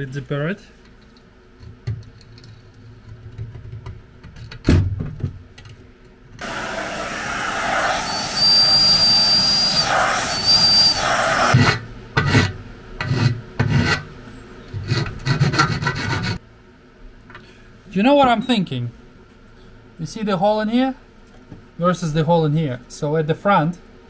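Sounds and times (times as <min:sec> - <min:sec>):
loud rushing noise with whine: 0:06.4 - 0:11.8.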